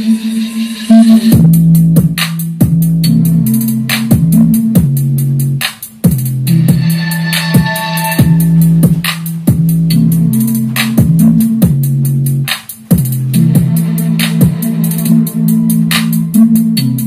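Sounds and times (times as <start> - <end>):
electronic dance music: 5.8 - 17.0.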